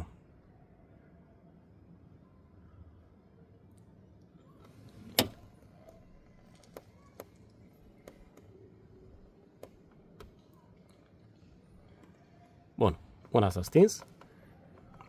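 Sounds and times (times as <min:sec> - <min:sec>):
faint clicks: 0:03.7 - 0:12.6.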